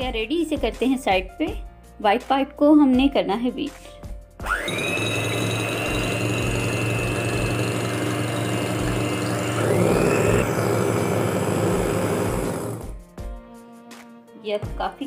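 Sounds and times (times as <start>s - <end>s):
electric hand mixer whisking: 4.4s - 13.0s.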